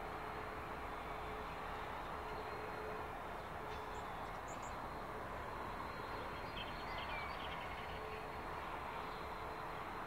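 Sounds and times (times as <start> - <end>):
distant diesel locomotives rumbling: 0.0 - 10.0.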